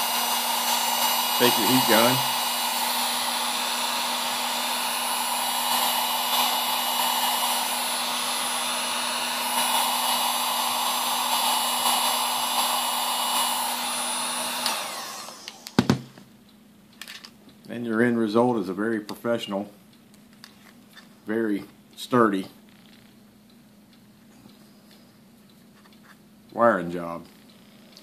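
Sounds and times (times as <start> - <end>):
heat gun blower running: 0.0 - 16.2.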